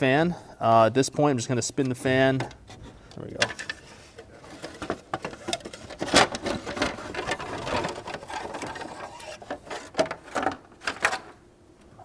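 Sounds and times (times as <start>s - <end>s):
plastic scraping against radiator: 2.7s - 11.0s.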